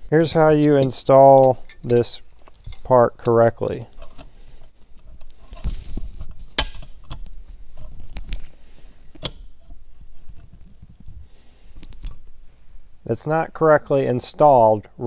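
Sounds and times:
handling noise: 0.0s - 12.8s
sharp metal clicks: 9.2s - 9.6s.

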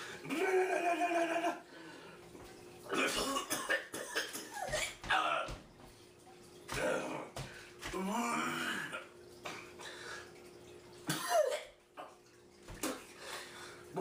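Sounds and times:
man gagging groan: 0.2s - 1.6s, 6.8s - 9.1s
liquid fizzing: 1.6s - 14.0s
man coughing: 2.9s - 5.5s, 11.1s - 11.7s.

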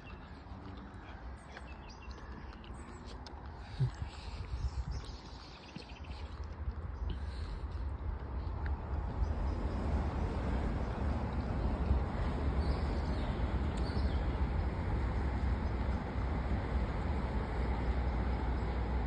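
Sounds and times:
wind buffeting microphone: 3.8s - 19.0s.

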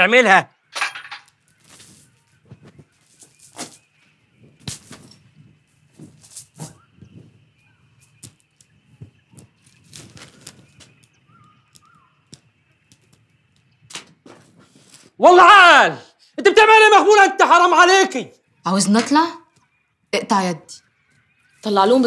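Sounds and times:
metal chain clinking: 0.8s - 6.9s, 7.5s - 12.0s.

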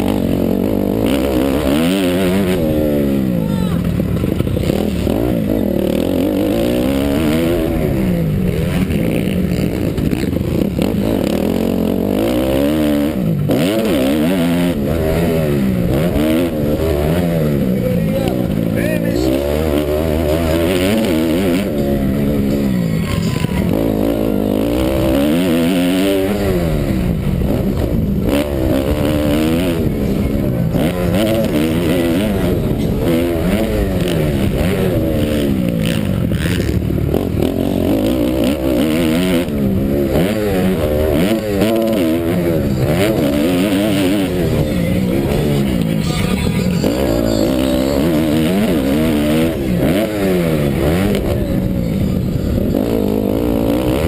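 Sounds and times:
motocross bike engine revving: 0.0s - 54.0s.

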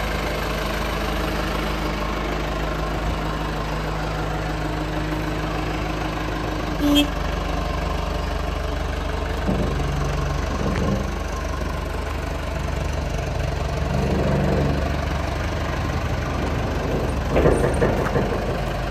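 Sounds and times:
diesel engine idling: 0.0s - 18.9s
loud knocks: 9.4s - 11.1s, 16.3s - 18.9s.

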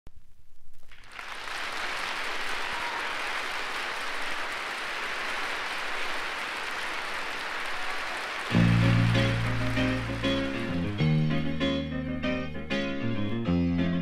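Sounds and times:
crowd applause: 0.9s - 11.1s.

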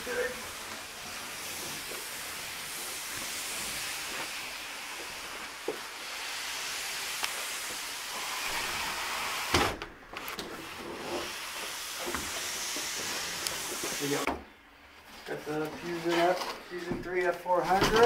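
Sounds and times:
cardboard box scraping on floor: 10.4s - 14.3s.

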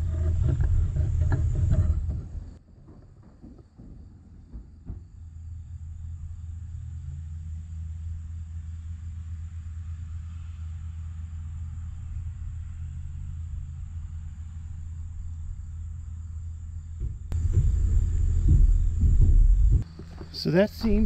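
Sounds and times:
crickets trilling: 0.0s - 21.0s
faint low hum: 0.0s - 21.0s
wind rumbling on microphone: 11.6s - 20.0s.

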